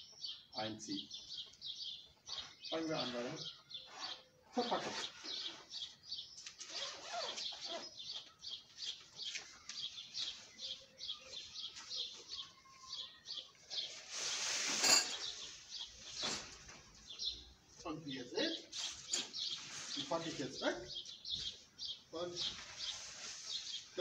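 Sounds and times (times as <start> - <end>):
bird chirping: 0.0 - 24.0
fabric bag rustling: 6.6 - 8.0.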